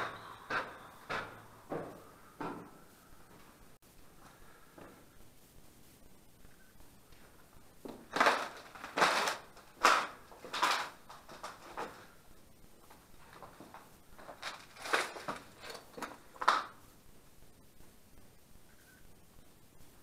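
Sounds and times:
footsteps crunching over debris: 0:07.2 - 0:12.1, 0:12.8 - 0:16.7.

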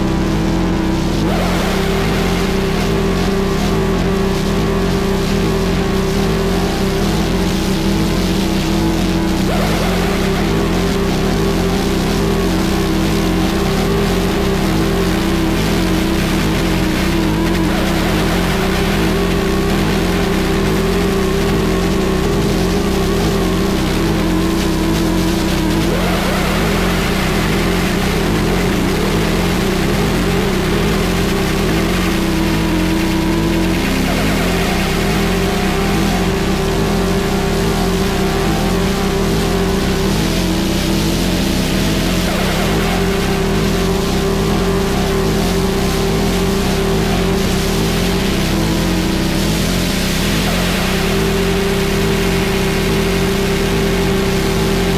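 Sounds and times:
harsh noise static: 0:00.0 - 0:54.9
low droning tones: 0:00.0 - 0:54.9.

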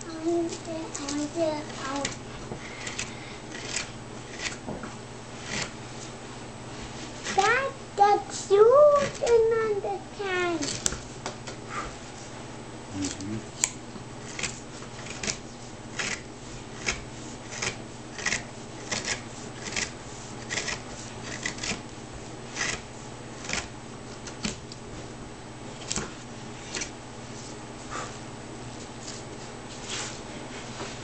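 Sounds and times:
knife scraping cuts in wood: 0:05.4 - 0:05.8, 0:14.2 - 0:21.8, 0:22.5 - 0:24.5.

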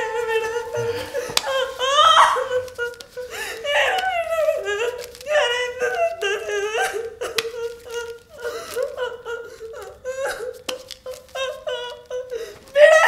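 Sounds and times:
woman crying and sobbing: 0:00.0 - 0:13.0.

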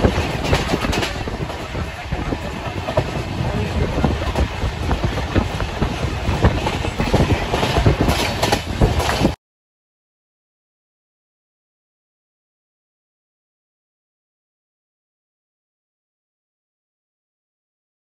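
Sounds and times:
train wheels clattering on rails: 0:00.0 - 0:09.4.

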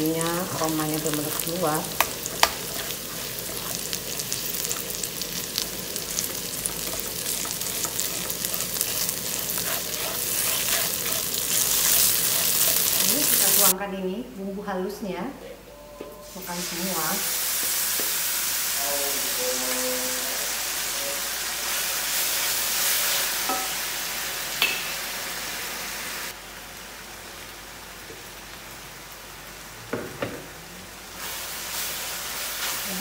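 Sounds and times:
spice paste sizzling in oil: 0:00.0 - 0:13.8, 0:19.8 - 0:29.7, 0:31.0 - 0:33.0.

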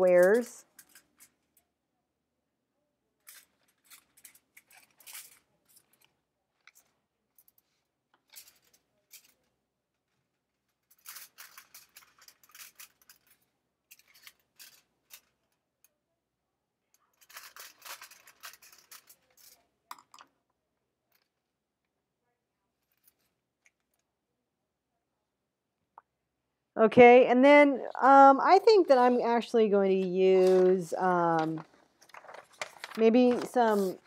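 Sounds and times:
scissors snipping foil: 0:03.2 - 0:06.1, 0:10.9 - 0:15.3, 0:17.2 - 0:19.7
foil crinkling: 0:03.2 - 0:07.0, 0:10.8 - 0:15.4, 0:17.2 - 0:19.7, 0:30.4 - 0:34.0.

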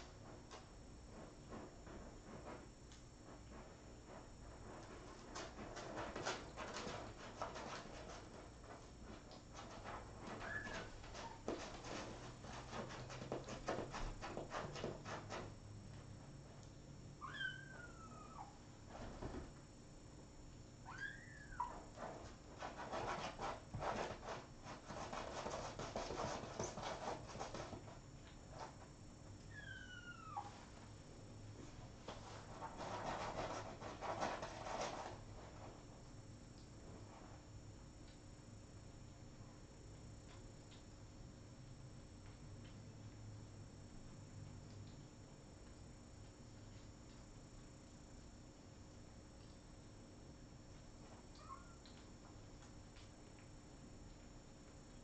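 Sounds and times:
kitten scratching in cat litter: 0:00.0 - 0:16.4, 0:20.9 - 0:30.8, 0:31.9 - 0:36.1
kitten squeaky meow: 0:10.4 - 0:11.4, 0:17.2 - 0:18.6, 0:20.8 - 0:21.8, 0:29.5 - 0:30.5, 0:51.4 - 0:51.8.

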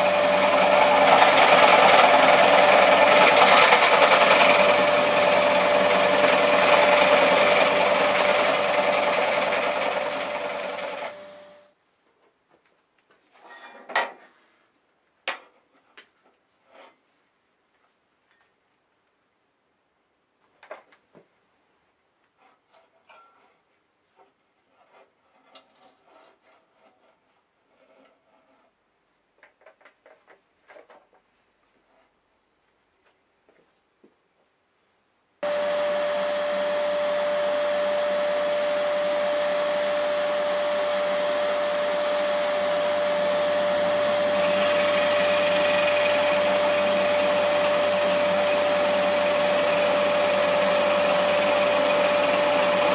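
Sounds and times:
scroll saw cutting: 0:00.0 - 0:11.6, 0:35.4 - 0:52.9.

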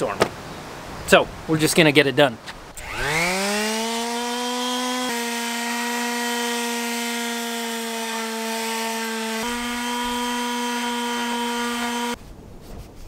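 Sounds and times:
electric sander motor whine: 0:02.8 - 0:12.2.

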